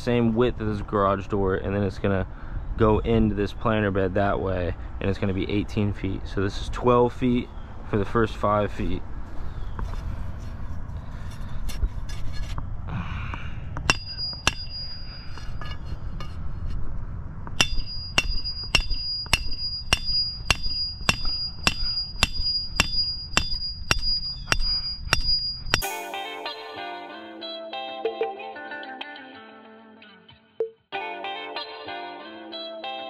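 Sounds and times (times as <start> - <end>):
hammer striking metal: 13.8 - 16.4, 17.6 - 26.6
guitar music: 25.8 - 33.0.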